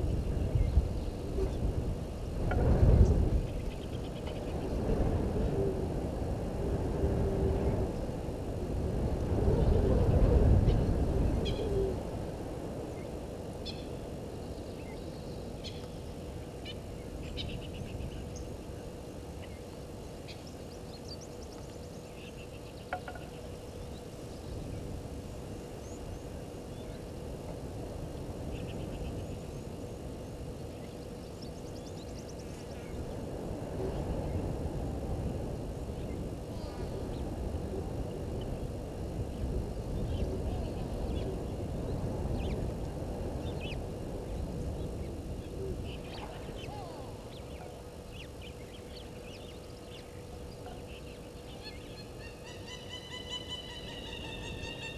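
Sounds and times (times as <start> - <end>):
faint steady hum: 0.0 - 54.9
birds chirping and trilling: 44.8 - 54.9.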